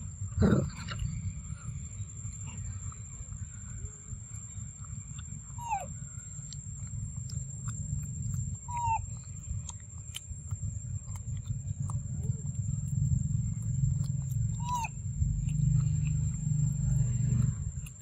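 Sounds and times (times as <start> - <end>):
low rumble: 0.0 - 18.0
macaque calls: 5.6 - 6.0, 8.6 - 9.2, 14.3 - 15.0.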